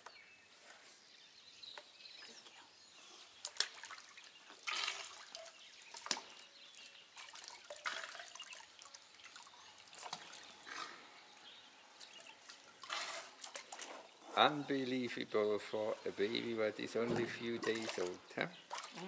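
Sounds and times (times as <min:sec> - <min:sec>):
water splashing in a plastic tub: 0:03.4 - 0:10.7, 0:11.4 - 0:14.2, 0:16.1 - 0:19.0.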